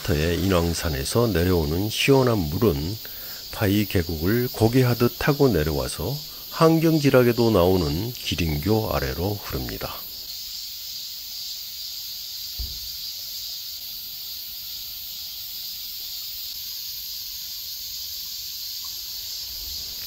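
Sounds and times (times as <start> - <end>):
insects chirring: 0.0 - 20.0
low thump: 12.6 - 13.0.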